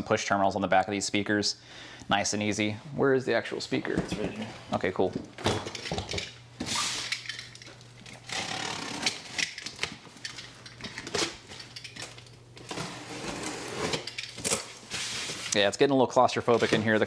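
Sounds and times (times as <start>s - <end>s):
cardboard boxes scraping: 12.7s - 14.1s.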